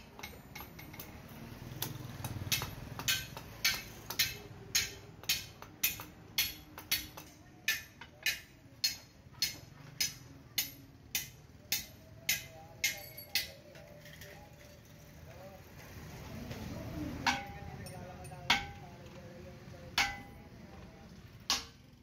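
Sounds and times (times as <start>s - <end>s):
hatchet chopping wood: 0.2s - 13.0s, 18.5s - 18.8s, 20.0s - 20.3s, 21.5s - 21.8s.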